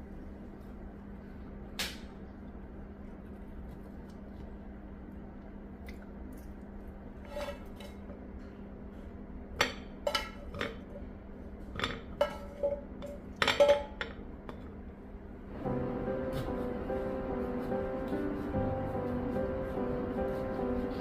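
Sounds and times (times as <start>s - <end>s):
faint hum: 0.0s - 21.0s.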